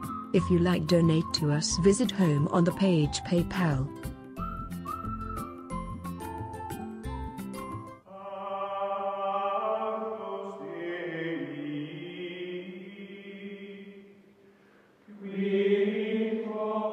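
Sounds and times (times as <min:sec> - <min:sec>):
choir-like chant of held chords: 0:08.1 - 0:14.2, 0:15.1 - 0:16.9.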